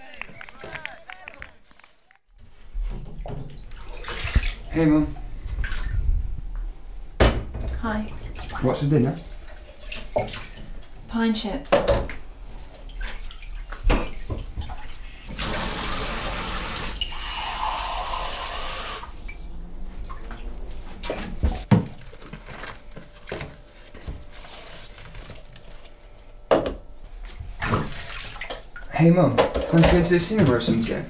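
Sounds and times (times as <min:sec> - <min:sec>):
hands sloshing in water: 0:03.6 - 0:04.7.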